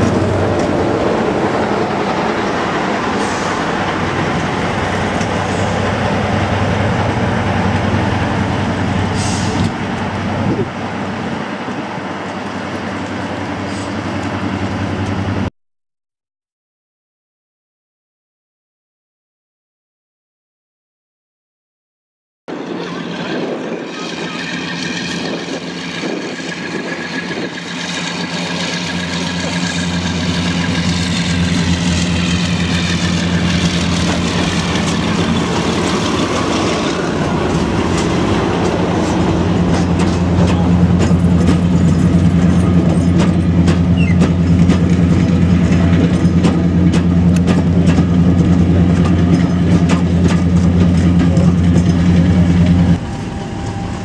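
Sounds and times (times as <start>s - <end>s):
diesel locomotive running: 0.0s - 15.5s, 22.5s - 54.0s
train wheels clicking over track: 23.4s - 54.0s.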